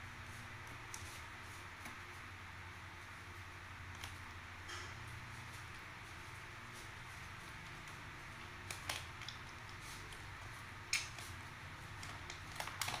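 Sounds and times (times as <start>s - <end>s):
faint room hiss: 0.0s - 13.0s
monkey eating with clicks and smacks: 7.6s - 13.0s.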